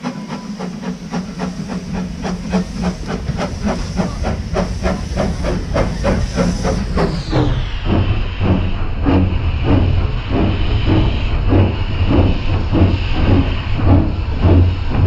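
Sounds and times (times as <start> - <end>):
locomotive exhaust chuffs: 0.0 - 15.0
steam hissing: 0.0 - 15.0.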